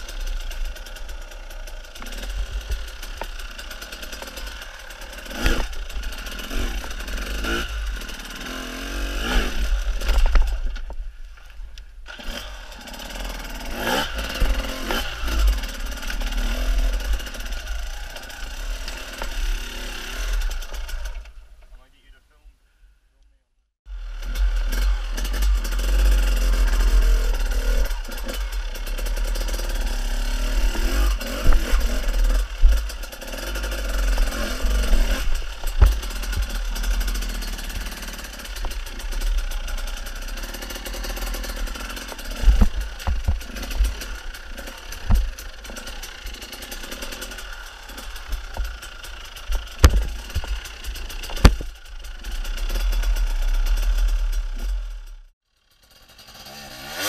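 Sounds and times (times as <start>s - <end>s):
motorcycle engine revving: 0.0s - 21.6s, 23.9s - 57.0s
motorcycle striking rocks: 1.6s - 7.6s, 9.6s - 11.0s, 13.8s - 19.6s, 27.4s - 51.8s.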